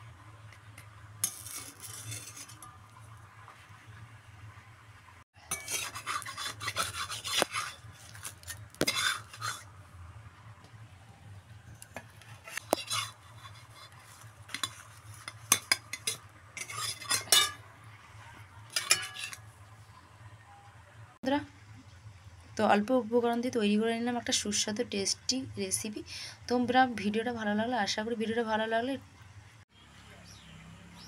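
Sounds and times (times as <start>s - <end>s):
low steady hum: 0.0s - 29.6s
spatula scraping metal pan: 1.2s - 2.7s, 5.5s - 9.7s, 12.0s - 17.6s, 18.7s - 19.5s.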